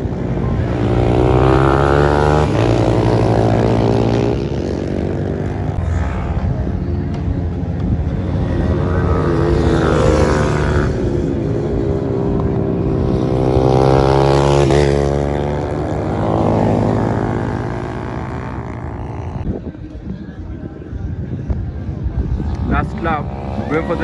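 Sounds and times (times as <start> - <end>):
motorcycles racing past: 0.0 - 19.5.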